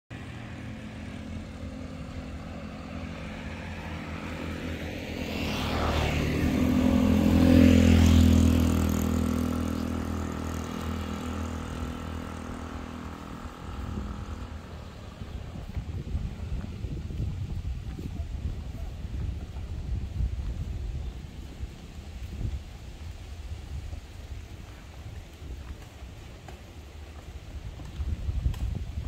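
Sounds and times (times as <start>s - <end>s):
vehicle engine passing by: 0.1s - 29.0s.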